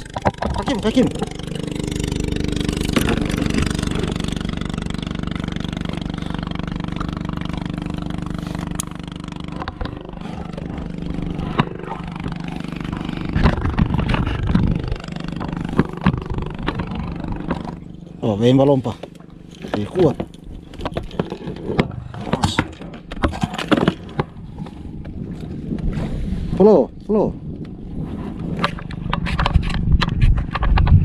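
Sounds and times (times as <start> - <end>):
boat engine humming: 0.0 - 30.9
sharp knocks and clatters: 9.3 - 17.9, 19.0 - 24.4, 28.6 - 31.0.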